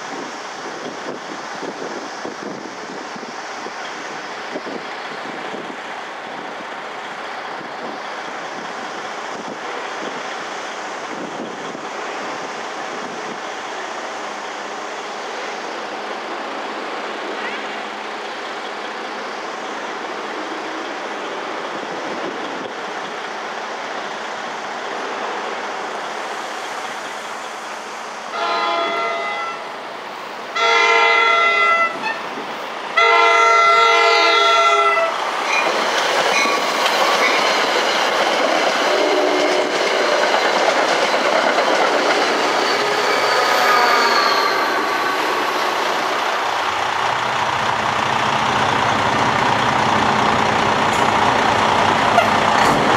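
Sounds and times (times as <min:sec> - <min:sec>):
train horn blasts: 0:28.3 - 0:29.7, 0:30.6 - 0:32.2, 0:33.0 - 0:35.2, 0:38.9 - 0:39.7
train wheels clattering over rails: 0:35.0 - 0:52.9.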